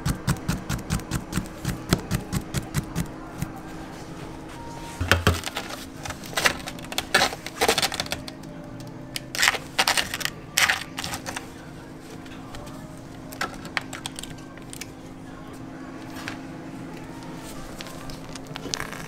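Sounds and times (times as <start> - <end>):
ice cream scoop scraping: 9.2 - 11.5.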